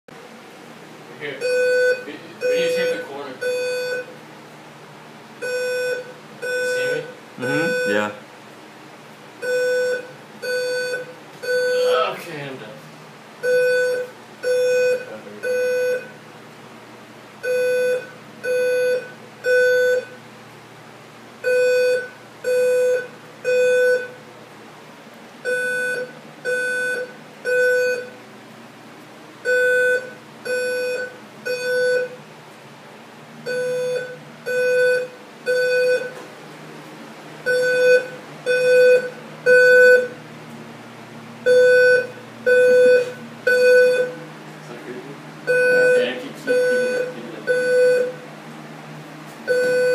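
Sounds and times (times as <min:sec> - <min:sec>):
fire alarm beeps: 0:01.4 - 0:04.2, 0:05.4 - 0:08.2, 0:09.4 - 0:12.0, 0:13.4 - 0:16.2, 0:17.4 - 0:20.2, 0:21.4 - 0:24.2, 0:25.4 - 0:28.2, 0:29.4 - 0:32.2, 0:33.5 - 0:36.2, 0:37.5 - 0:40.2, 0:41.4 - 0:44.2, 0:45.5 - 0:48.2, 0:49.5 - 0:49.9.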